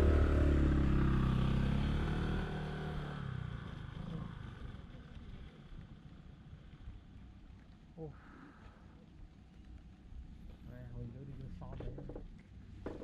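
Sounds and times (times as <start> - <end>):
motorcycle engine pulling away: 0.0 - 6.0.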